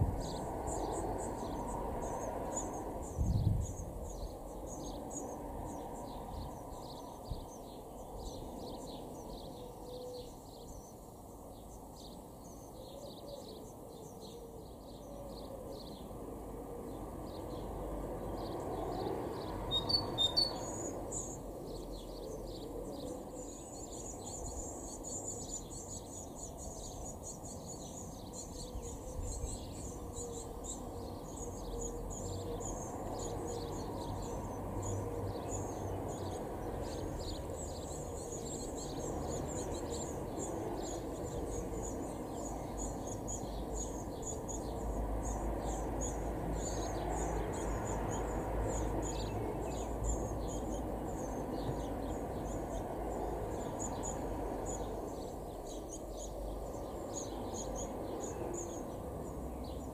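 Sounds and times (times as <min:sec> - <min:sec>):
birds chirping: 0:00.0 - 0:59.9
rapid high-pitched bird calls: 0:19.7 - 0:21.9.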